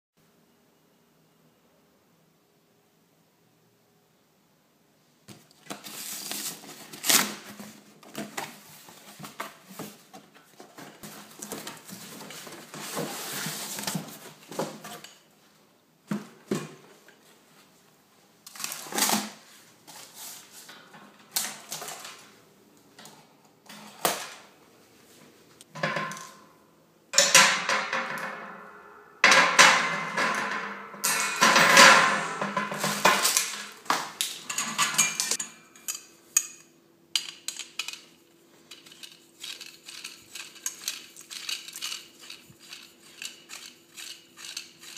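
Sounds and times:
packaging rustling and scraping: 0:05.6 - 0:15.1, 0:18.5 - 0:22.3, 0:32.6 - 0:35.4, 0:37.5 - 0:44.9
wire shelves clinking: 0:25.7 - 0:26.6, 0:27.2 - 0:44.9.

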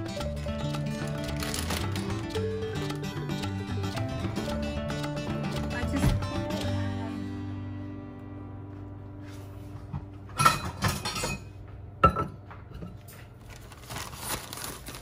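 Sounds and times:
guitar music: 0:00.0 - 0:10.4
plastic bag rustling: 0:01.0 - 0:02.4, 0:13.3 - 0:15.0
dishes clinking: 0:10.3 - 0:13.2.

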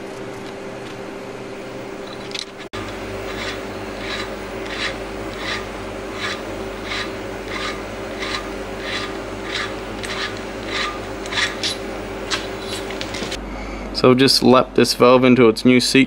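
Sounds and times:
valve seat cutter rasping: 0:02.6 - 0:13.4.

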